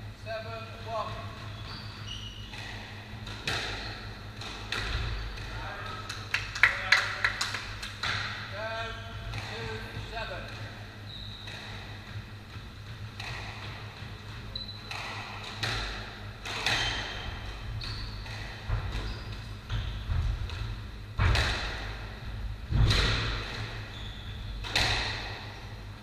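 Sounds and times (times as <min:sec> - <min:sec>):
shoes squeaking on wooden floor: 0:01.1 - 0:06.0, 0:10.7 - 0:15.4, 0:16.5 - 0:20.4, 0:23.7 - 0:24.6
squash ball cracks echoing: 0:02.6 - 0:08.6, 0:20.4 - 0:23.8, 0:24.6 - 0:25.6.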